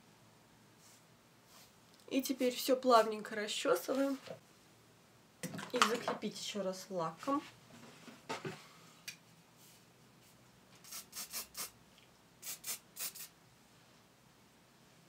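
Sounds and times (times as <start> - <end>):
aerosol spray bursts: 10.8 - 11.8, 12.4 - 13.3.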